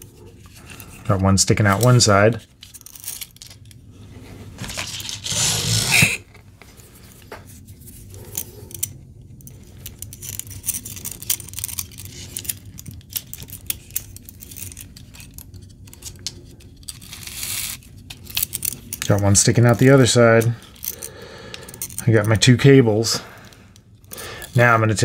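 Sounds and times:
rustling noise: 0:03.9 - 0:08.8
clicks and scrapes of plastic and wire: 0:04.6 - 0:22.8.

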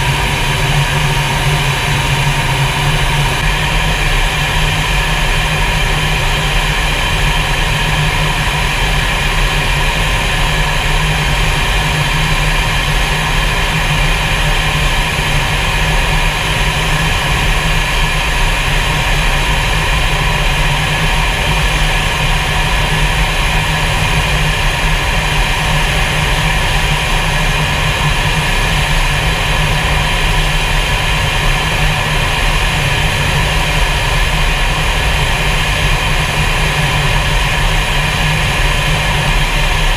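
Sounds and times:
high steady whines: 0:00.0 - 0:39.9
jet engine rumble: 0:00.0 - 0:39.9.

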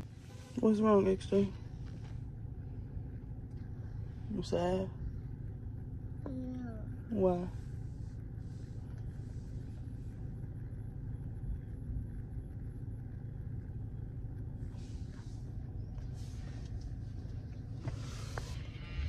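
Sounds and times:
car cabin rumble: 0:00.0 - 0:19.0
faint rustles: 0:00.0 - 0:19.0.

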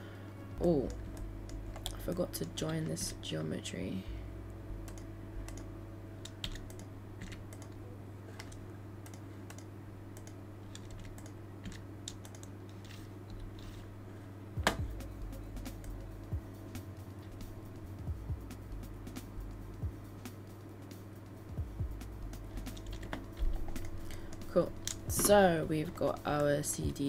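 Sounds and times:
low steady hum: 0:00.0 - 0:27.0
keyboard keystrokes: 0:06.2 - 0:07.8.

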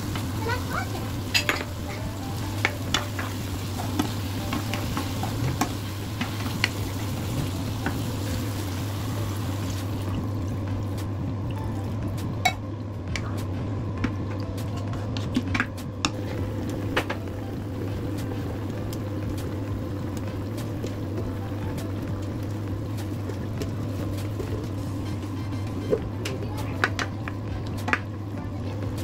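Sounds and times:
tomato base sizzling in a pot: 0:00.0 - 0:12.6, 0:16.1 - 0:29.0
ladle stirring food: 0:00.1 - 0:08.9.

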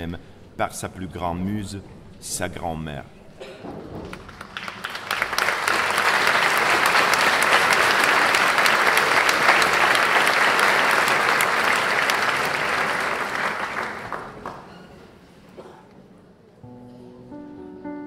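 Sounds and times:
large audience applauding: 0:04.0 - 0:14.7.

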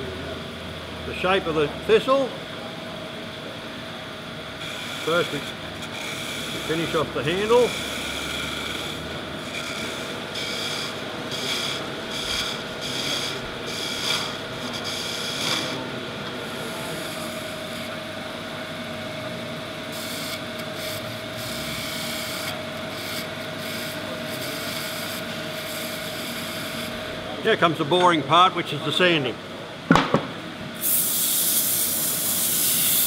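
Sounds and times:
wood lathe motor whine: 0:04.2 - 0:27.3
chisel cutting spinning wood: 0:04.5 - 0:27.1.

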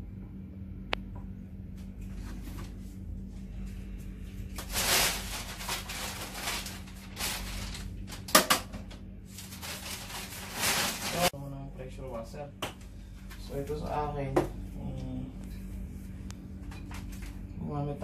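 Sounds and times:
low steady hum: 0:00.0 - 0:18.0
rustling and clatter: 0:04.6 - 0:08.2, 0:09.3 - 0:11.3.

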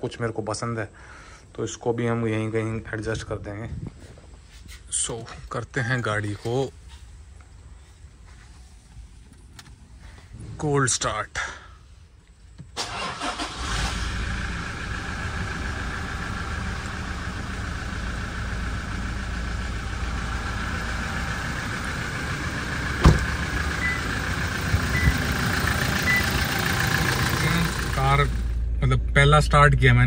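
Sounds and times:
diesel engine starting and idling: 0:12.7 - 0:30.0.

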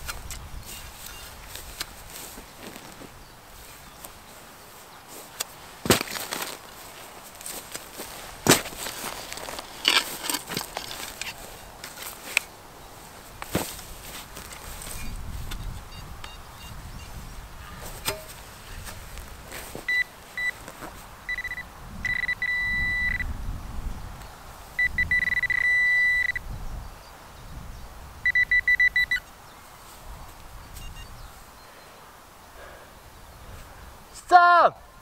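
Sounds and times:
metal detector beeping: 0:00.6 - 0:01.3, 0:15.6 - 0:17.1, 0:19.9 - 0:20.6, 0:21.3 - 0:23.3, 0:24.8 - 0:26.4, 0:28.3 - 0:29.3, 0:30.8 - 0:31.1.

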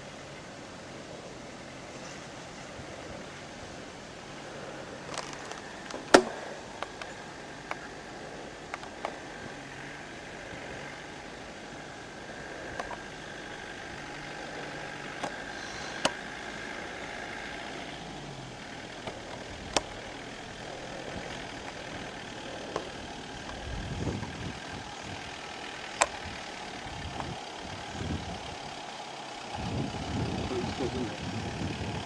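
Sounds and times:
engine running at low revs: 0:00.0 - 0:32.0
low rumbling: 0:00.0 - 0:32.0
sharp clicks: 0:08.7 - 0:09.2, 0:12.7 - 0:13.1, 0:15.1 - 0:16.3, 0:19.0 - 0:20.2, 0:25.8 - 0:26.3.

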